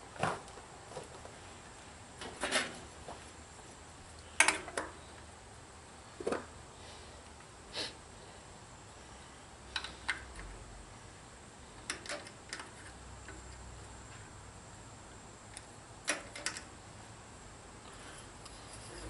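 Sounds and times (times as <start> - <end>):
small metal parts clicking: 15.5 - 16.7.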